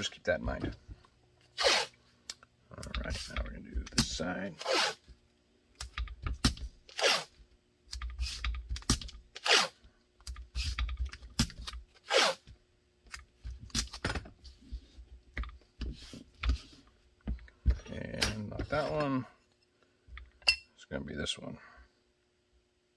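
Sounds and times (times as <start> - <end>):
tape being pulled and torn: 1.4 - 2.0, 4.0 - 5.1, 5.8 - 12.5
loud tape rips: 1.6 - 1.9, 4.6 - 5.1, 6.4 - 7.3, 8.2 - 9.8, 11.4 - 12.4.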